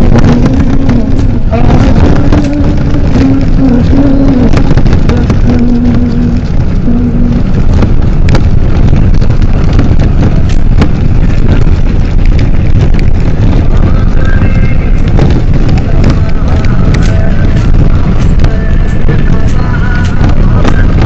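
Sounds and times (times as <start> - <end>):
vehicle rumbling and rattling: 0.0 - 21.0.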